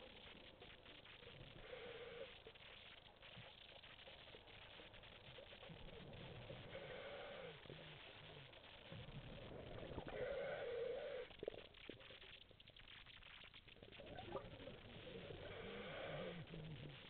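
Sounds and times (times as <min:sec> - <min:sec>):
exhaled air bubbling: 0:00.0 - 0:17.0
diver breathing through regulator: 0:01.5 - 0:02.4, 0:06.4 - 0:08.4, 0:09.7 - 0:11.5, 0:14.8 - 0:17.0.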